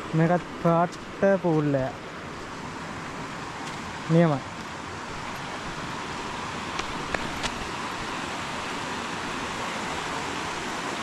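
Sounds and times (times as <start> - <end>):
creek water over rocks: 0.0 - 11.0.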